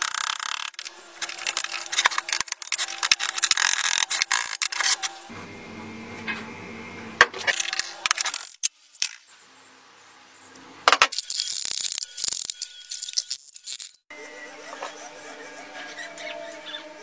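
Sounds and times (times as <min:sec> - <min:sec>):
metal scraping: 0:00.0 - 0:05.3
metal parts clinking: 0:11.1 - 0:14.0.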